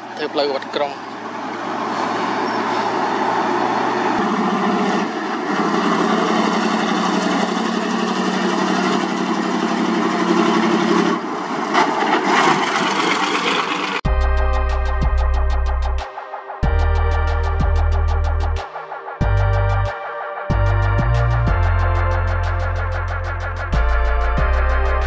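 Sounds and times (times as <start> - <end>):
diesel trucks driving past: 0.0 - 14.0.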